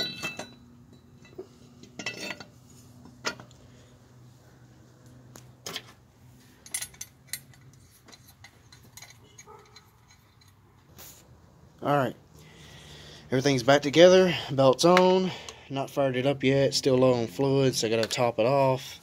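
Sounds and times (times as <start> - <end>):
metal clinks and knocks: 0.0 - 3.6, 5.6 - 10.7.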